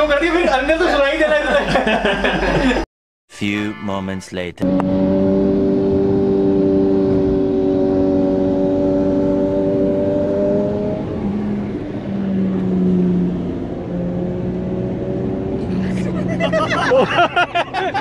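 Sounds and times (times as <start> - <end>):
road noise: 3.4 - 18.0
motorcycle engines revving high: 4.6 - 18.0.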